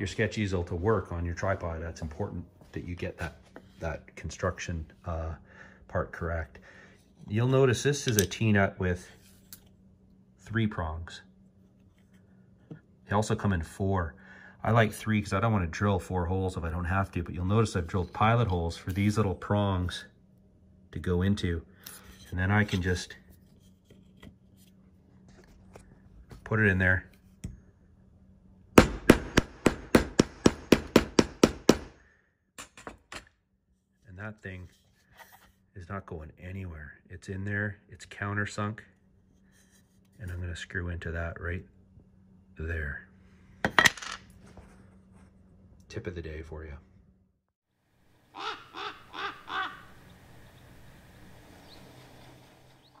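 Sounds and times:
crow cawing: 48.3s - 50.1s.

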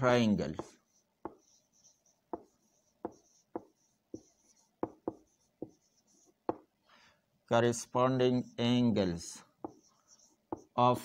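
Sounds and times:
marker squeaking on whiteboard: 0.1s - 6.7s, 9.5s - 10.9s
marker tapping on whiteboard: 0.4s - 6.7s, 9.6s - 10.8s.

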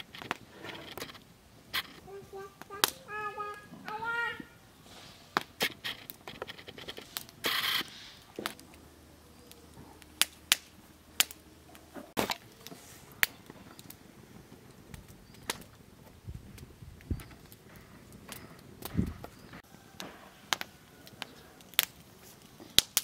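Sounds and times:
sharp clicks and light knocks: 0.0s - 2.1s
brief scrape: 4.8s - 8.5s.

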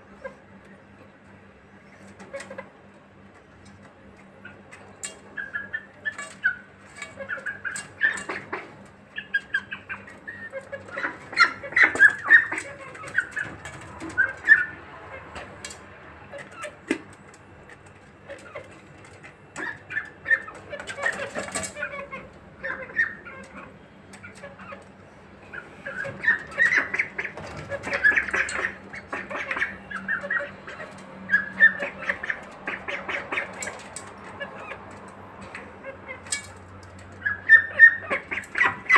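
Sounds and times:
bills pecking feed dishes: 0.0s - 38.9s
chicks peeping: 3.7s - 38.9s.

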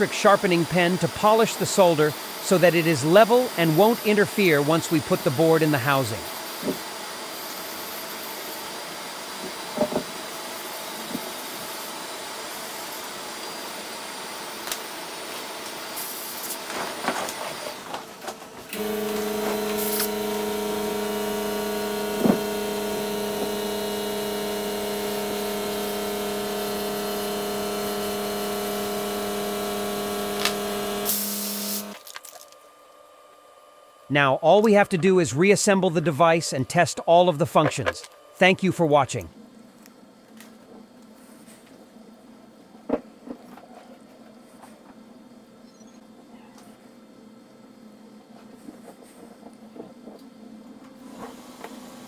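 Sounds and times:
low motor hum: 18.7s - 32.0s.

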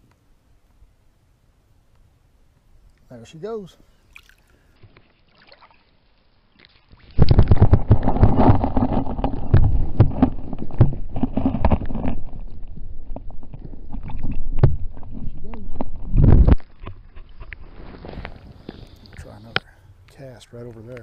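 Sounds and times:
muffled underwater water noise: 3.9s - 20.2s
camera housing knocking underwater: 7.2s - 17.5s.

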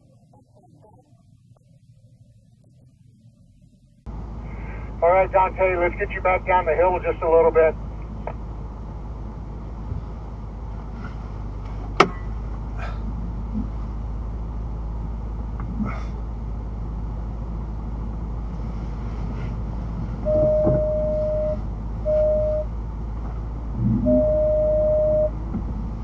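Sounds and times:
engine idling: 0.0s - 26.0s
electronic beep tone: 20.3s - 22.7s, 24.0s - 25.4s.

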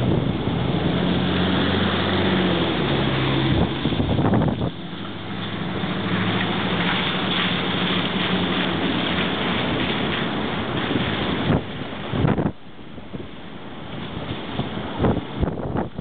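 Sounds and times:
subway train rumbling overhead: 0.0s - 12.5s
wind on microphone: 0.0s - 16.0s.

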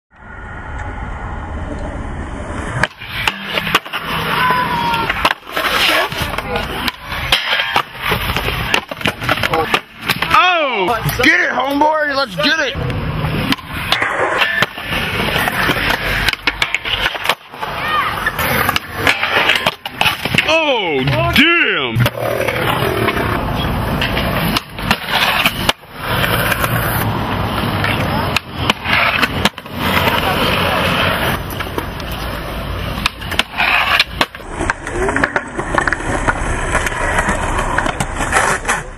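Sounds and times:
skateboard wheels rolling on concrete: 0.2s - 38.9s
skateboard clacks: 2.8s - 11.9s, 12.8s - 38.9s.

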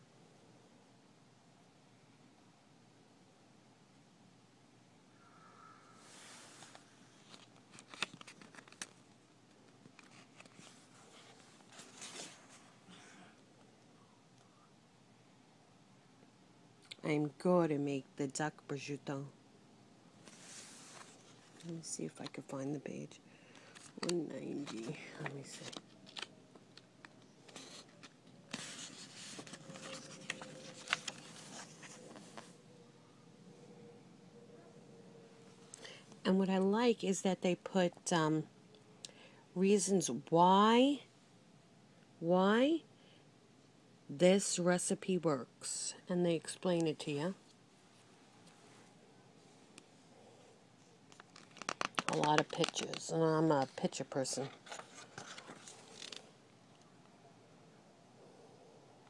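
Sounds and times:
pages turning: 6.5s - 9.1s, 9.9s - 12.7s, 20.2s - 22.4s, 23.6s - 32.5s, 51.1s - 56.3s.

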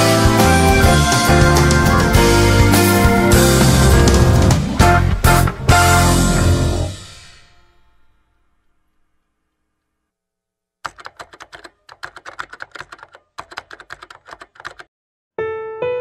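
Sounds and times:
piano music: 0.0s - 8.1s, 15.4s - 16.0s
music track: 0.0s - 8.3s
keyboard key clicks: 10.8s - 14.9s.

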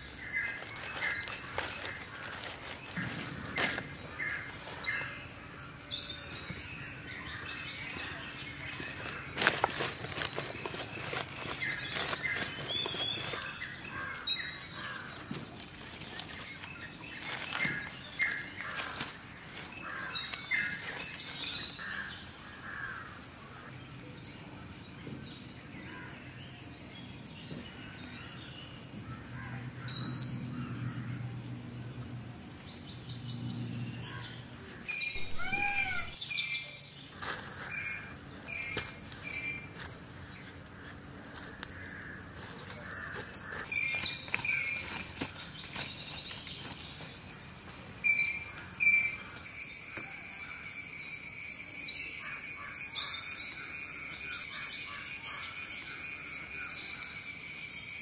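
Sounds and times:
high-pitched insect drone: 27.1s - 58.0s
birds chirping and calling: 34.0s - 36.8s.

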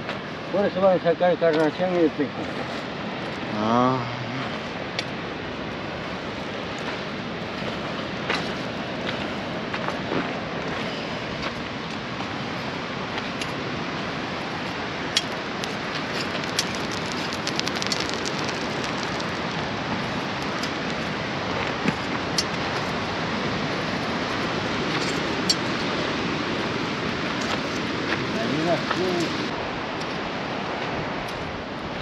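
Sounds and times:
sea surf: 0.0s - 32.0s
wind: 0.0s - 32.0s
footsteps on sand and pebbles: 15.4s - 25.3s.

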